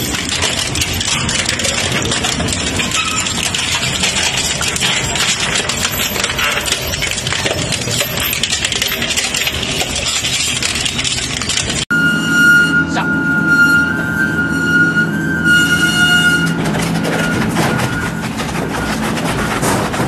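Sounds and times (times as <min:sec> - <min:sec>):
shredder crunching scrap metal: 0:00.0 - 0:11.9, 0:16.3 - 0:20.0.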